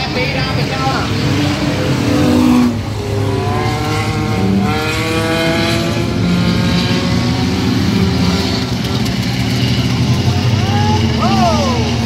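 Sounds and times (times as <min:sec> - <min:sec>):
race car engines revving: 0:00.0 - 0:12.0.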